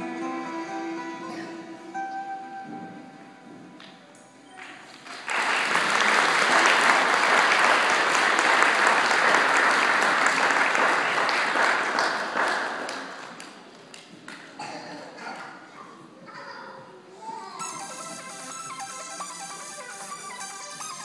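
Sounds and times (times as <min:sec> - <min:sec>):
audience applauding: 0:04.6 - 0:14.4.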